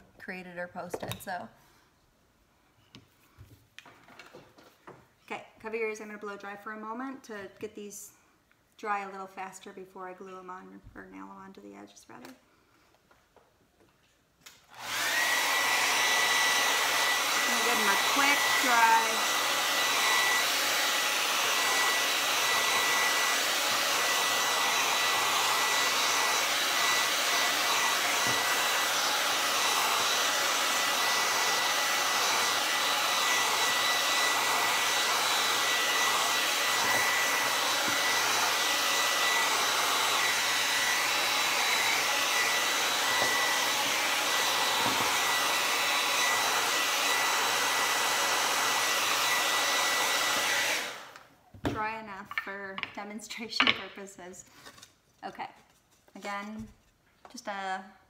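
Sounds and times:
hair dryer switching off: 14.6 - 51.3
hair dryer blowing: 14.6 - 51.9.

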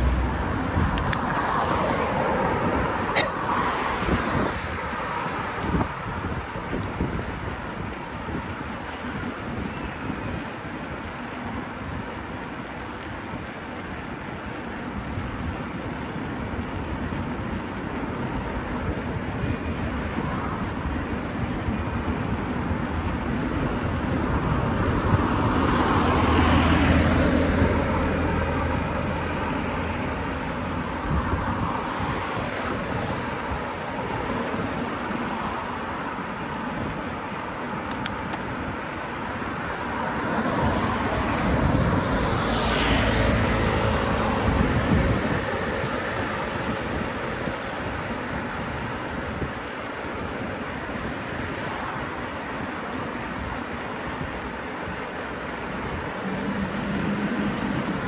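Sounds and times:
street traffic: 0.0 - 58.0
wind noise on microphone: 0.0 - 58.0
car passing close: 24.6 - 33.4, 39.8 - 47.4.

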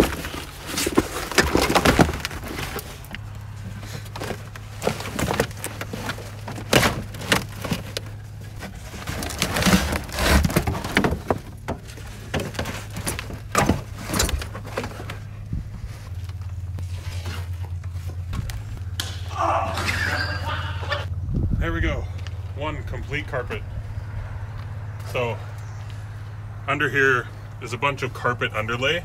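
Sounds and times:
carpet crackling and rustling: 0.0 - 18.8.

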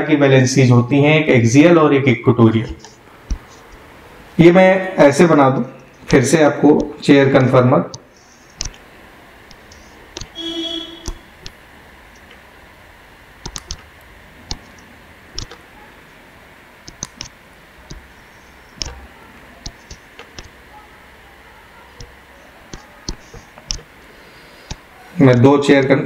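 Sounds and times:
stylus tapping on drawing tablet: 2.6 - 3.5
short hum-like tone: 9.1 - 11.7.

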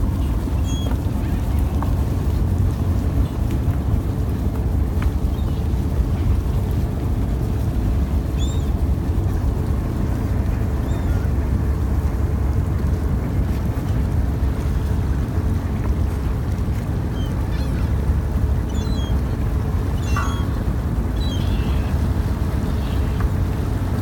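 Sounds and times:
boat engine drone: 0.0 - 24.0
faint gull calls: 0.6 - 1.5, 17.0 - 23.8.

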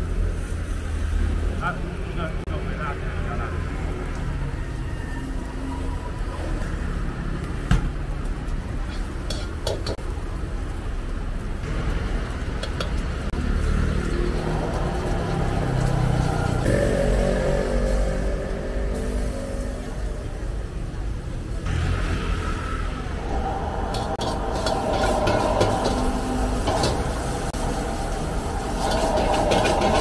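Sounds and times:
gas burner rumble: 6.6 - 30.0.

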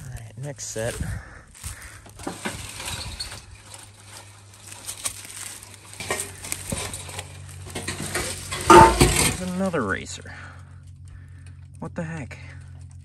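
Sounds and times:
metal roofing sheets scraping and rattling: 2.2 - 9.9
metallic knocks: 7.9 - 9.4.

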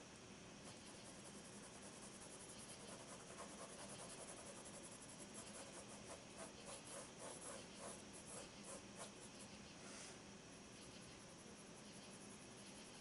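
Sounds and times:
pencil scratching on paper: 0.6 - 9.6.

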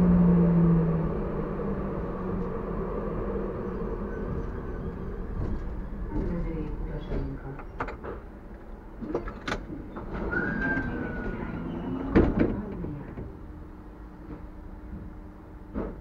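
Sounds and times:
tram low hum: 0.0 - 16.0.

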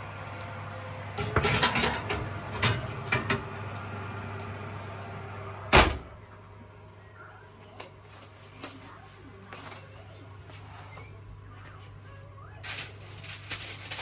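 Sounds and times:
steady low hum: 0.0 - 13.5
cookware and utensils clattering: 1.2 - 3.5.

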